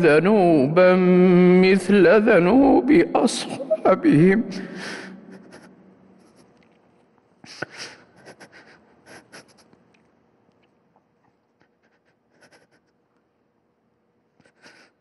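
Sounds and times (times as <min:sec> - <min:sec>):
breaths close to microphone: 0:04.5 - 0:05.6.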